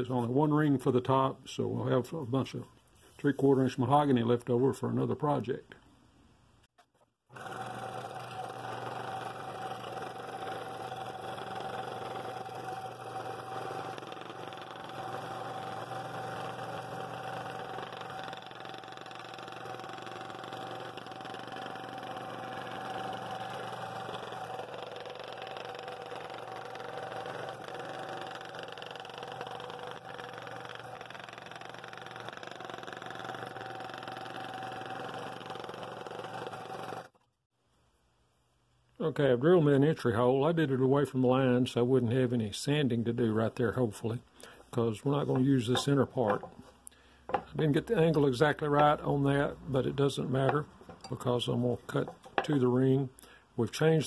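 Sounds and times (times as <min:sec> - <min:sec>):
scroll saw running: 0:07.3 - 0:37.2.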